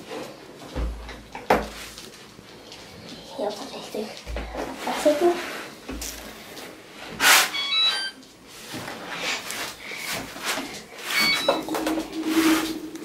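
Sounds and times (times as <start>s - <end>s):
high electronic beeps: 7.5s - 8.2s, 11.1s - 11.8s.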